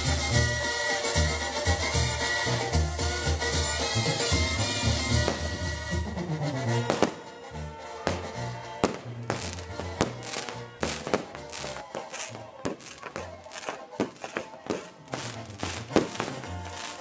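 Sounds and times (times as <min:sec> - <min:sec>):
brass band music: 0:00.0 - 0:17.0
firework bangs and crackling: 0:00.0 - 0:17.0.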